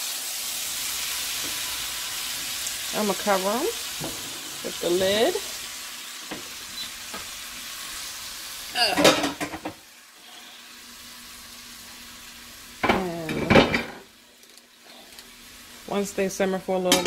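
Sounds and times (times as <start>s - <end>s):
vegetables sizzling in a frying pan: 0.0s - 17.0s
person speaking: 4.6s - 5.5s.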